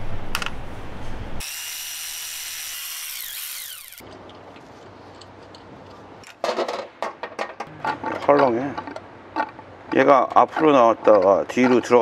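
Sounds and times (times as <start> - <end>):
power tool whirring: 1.4 - 4.0.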